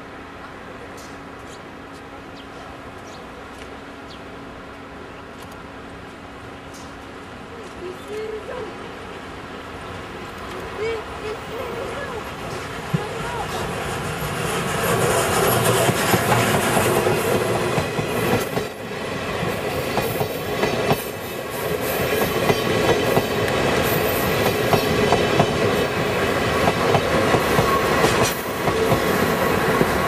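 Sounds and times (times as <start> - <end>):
train wheels clacking over rail joints: 13.9 - 30.0.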